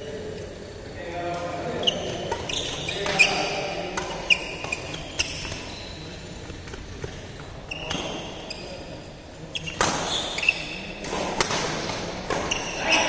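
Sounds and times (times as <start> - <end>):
court shoes squeaking: 1.4 - 13.0
racket striking shuttlecock: 11.0 - 12.8.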